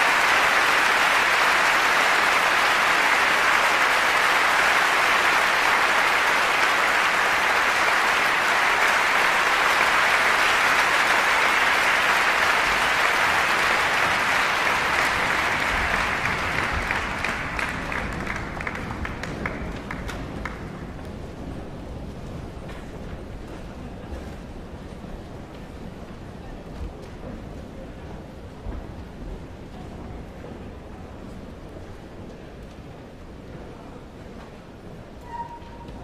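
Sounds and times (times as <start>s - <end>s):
audience applauding: 0.0s - 21.2s.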